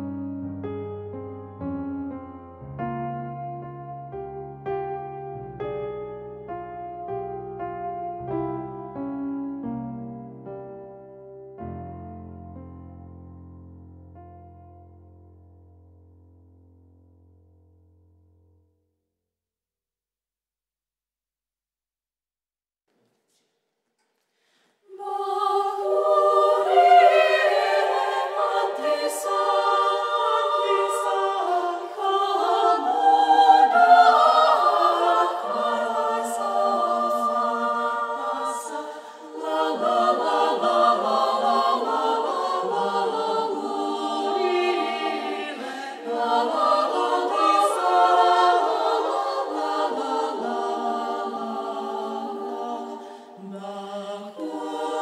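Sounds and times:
women's choir singing a cappella: 24.9s - 55.0s.

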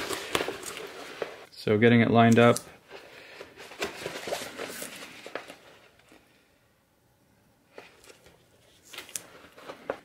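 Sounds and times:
fabric rustling and crinkling: 0.0s - 1.5s.

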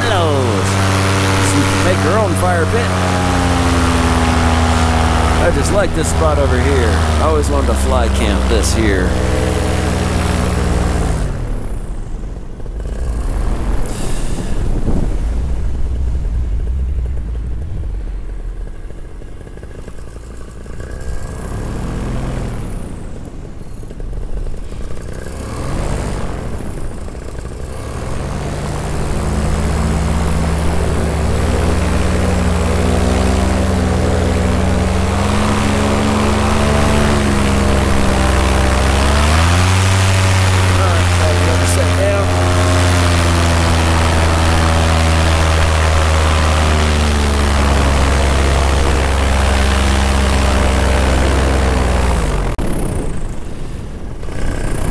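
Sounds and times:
rushing air: 0.0s - 11.4s, 12.7s - 20.9s
paramotor engine running: 0.0s - 54.9s.

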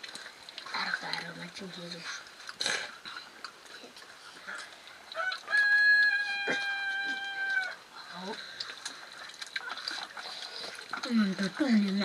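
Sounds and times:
rooster crowing: 5.2s - 7.8s.

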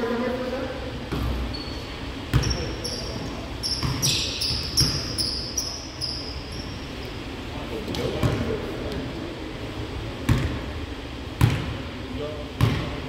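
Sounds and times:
sneaker squeaks on floor: 1.1s - 6.9s
basketball bouncing on court: 2.3s - 2.7s, 3.6s - 6.2s, 7.9s - 8.5s, 10.2s - 10.6s, 11.4s - 11.8s, 12.6s - 13.0s.

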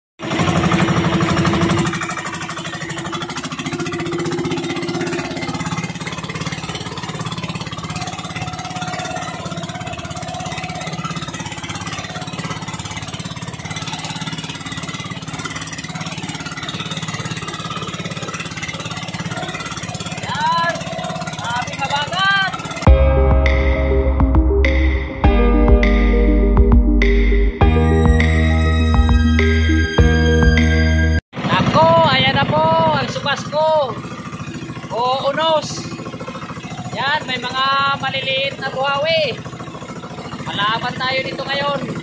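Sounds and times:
water splashing along hull: 0.2s - 22.9s, 33.1s - 42.0s
boat engine running: 0.2s - 42.0s.

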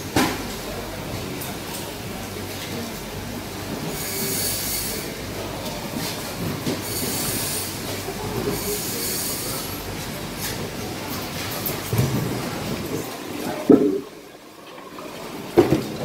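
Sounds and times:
low knocks of heavy fish: 13.7s - 14.1s.

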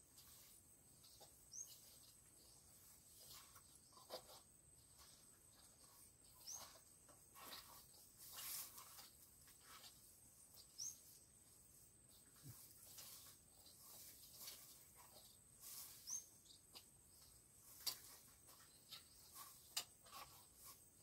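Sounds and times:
faint scrapes: 0.1s - 16.4s.

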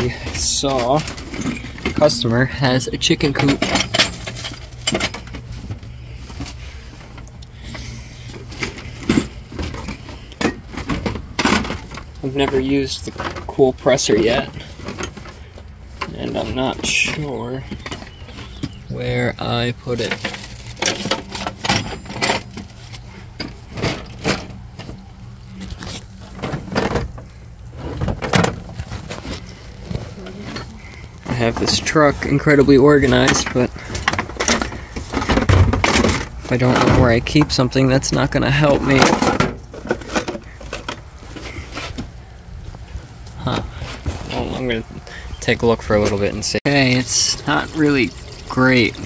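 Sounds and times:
tools knocking and clunking: 0.0s - 5.8s, 8.4s - 18.8s, 20.0s - 25.0s, 33.0s - 37.6s, 38.7s - 42.1s
steady low hum: 0.0s - 13.5s
low steady hum: 0.0s - 49.0s.

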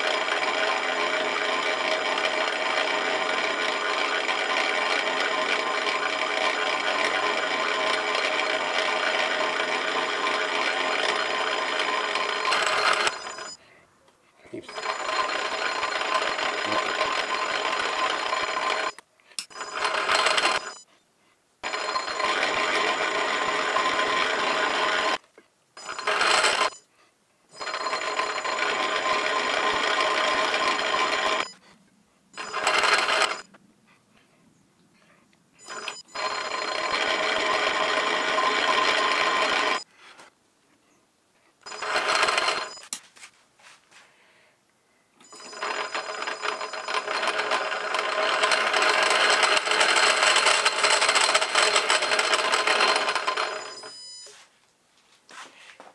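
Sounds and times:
metal lathe whining hum: 0.0s - 13.5s, 14.7s - 20.8s, 21.6s - 25.2s, 27.6s - 31.5s, 35.6s - 39.8s, 41.7s - 42.8s, 45.3s - 53.8s.

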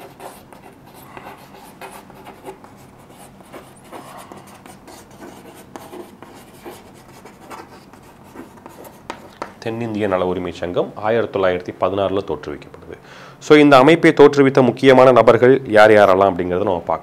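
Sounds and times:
chalk scratching on chalkboard: 0.0s - 9.5s.

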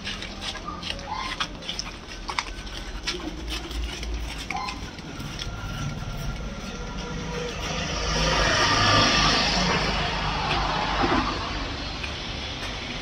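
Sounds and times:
low rumble: 5.0s - 13.0s.

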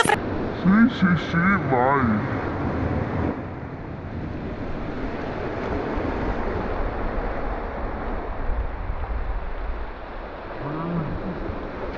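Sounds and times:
wind rumbling on microphone: 1.6s - 11.9s
small waves breaking on beach: 4.1s - 11.9s.

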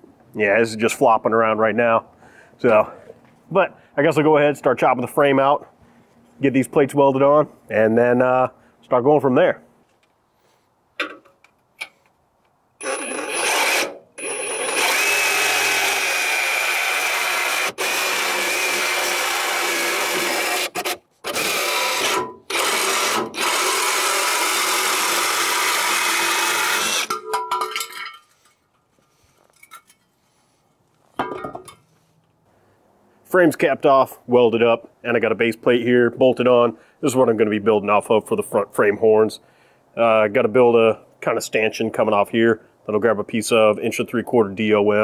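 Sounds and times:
reciprocating saw cutting steel: 12.8s - 27.2s.

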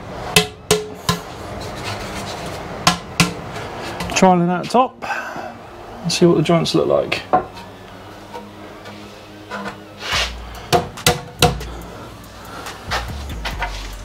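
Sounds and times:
sharp wooden knocks: 10.7s - 11.7s.

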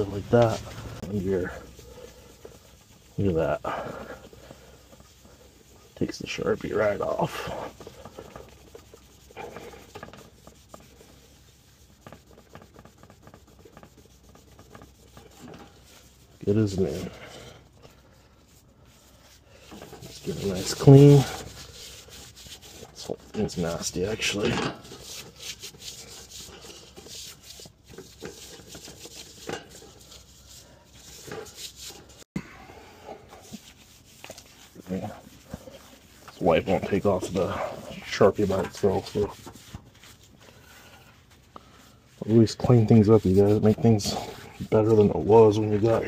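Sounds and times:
fingers rubbing gritty metal: 0.0s - 32.2s, 33.0s - 46.0s
cloth scrubbing sheet steel: 0.0s - 32.3s, 33.0s - 46.0s.

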